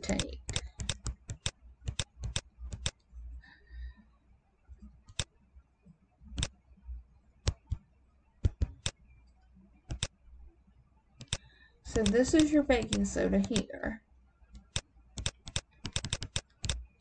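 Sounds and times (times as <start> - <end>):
computer mouse clicking: 0.0 - 3.1, 5.1 - 5.3, 6.4 - 6.6, 7.4 - 10.2, 11.2 - 13.7, 14.5 - 16.9
faint low hum: 0.0 - 17.0.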